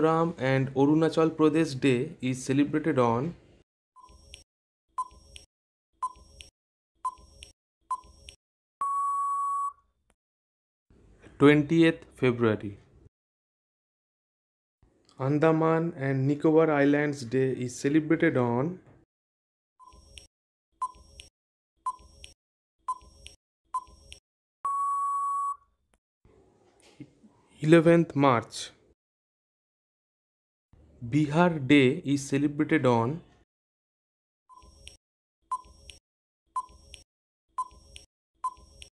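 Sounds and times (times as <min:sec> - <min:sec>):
countdown timer beeps: 0:08.8 - 0:09.8, 0:23.8 - 0:25.6
short timer beeps: 0:37.6 - 0:38.9.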